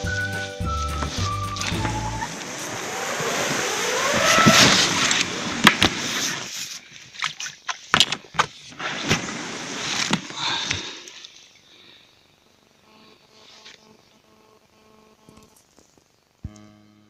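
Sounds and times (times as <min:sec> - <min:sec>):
short piece of music: 0:00.0 - 0:02.3
squeak rising in pitch: 0:00.0 - 0:05.3
boat hull scraping through grass: 0:00.2 - 0:06.9, 0:08.7 - 0:10.3.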